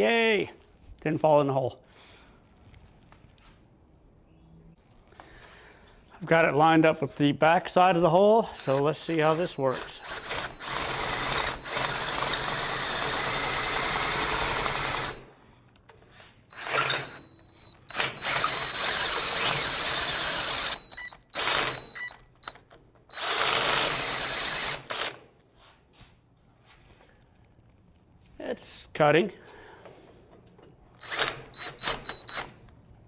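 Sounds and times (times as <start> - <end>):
drill hole saw cutting metal: 8.5 - 15.2, 16.5 - 22.0, 23.1 - 25.2, 31.0 - 32.5.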